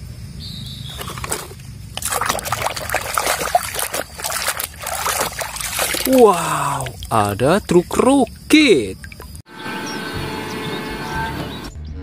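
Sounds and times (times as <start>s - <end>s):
hand splashing in water basin: 2.0s - 9.4s.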